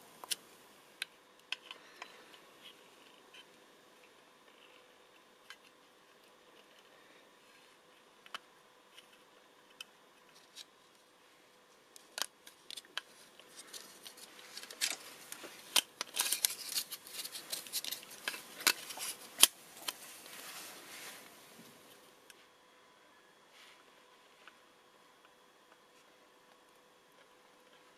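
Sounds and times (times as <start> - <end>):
plastic parts clicking: 12.0 - 20.0
plastic parts scraping: 12.0 - 20.8.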